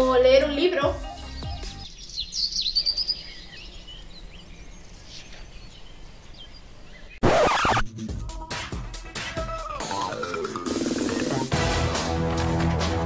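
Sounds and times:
birds chirping: 0:00.0 - 0:07.8
loud music: 0:07.2 - 0:13.0.

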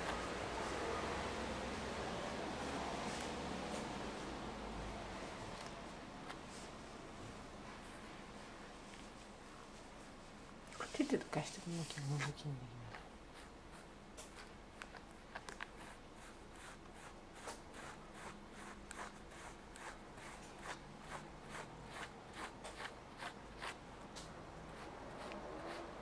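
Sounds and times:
brush scratching through fur: 0:10.7 - 0:15.0, 0:15.6 - 0:23.8, 0:24.6 - 0:26.0.

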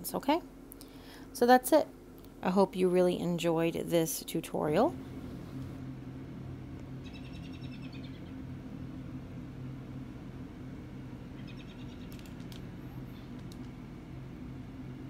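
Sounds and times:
steady low hum: 0:00.0 - 0:15.0
small bird chirping trills: 0:07.0 - 0:08.4, 0:11.3 - 0:12.3.

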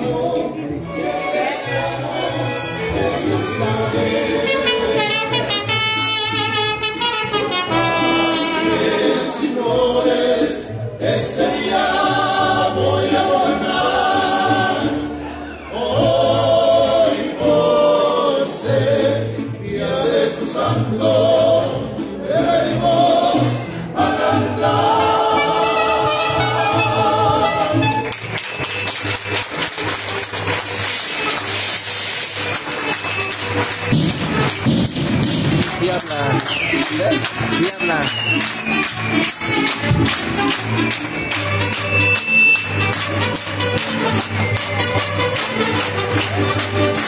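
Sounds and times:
group singing in unison: 0:00.0 - 0:05.4, 0:08.1 - 0:28.0
acoustic guitars: 0:00.0 - 0:47.0.

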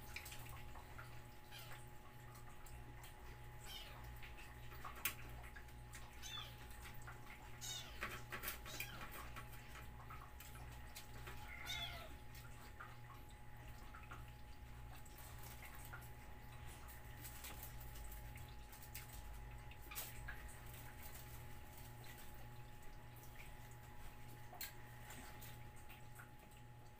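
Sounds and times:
cats meowing: 0:01.4 - 0:01.9, 0:03.6 - 0:04.2, 0:06.0 - 0:06.8, 0:07.4 - 0:09.4, 0:11.2 - 0:12.3.

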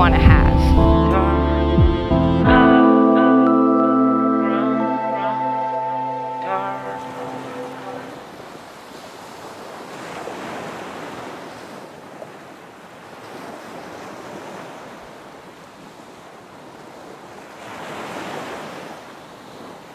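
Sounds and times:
ocean waves breaking on beach: 0:04.4 - 0:19.9.

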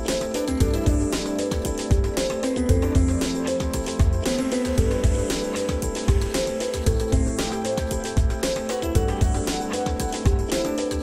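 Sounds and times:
background music with drum beat: 0:00.0 - 0:11.0.

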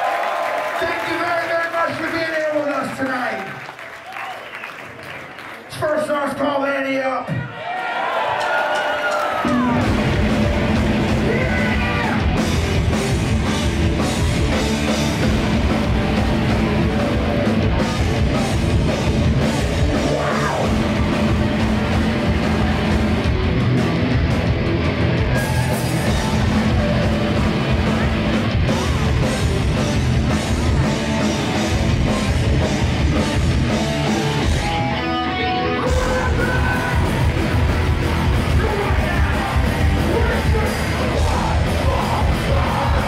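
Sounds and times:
punk band playing live: 0:08.8 - 0:43.0.

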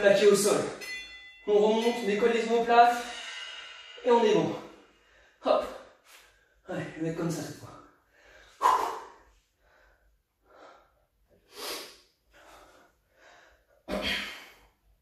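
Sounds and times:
man breathing hard: 0:03.0 - 0:04.0, 0:07.9 - 0:15.0.

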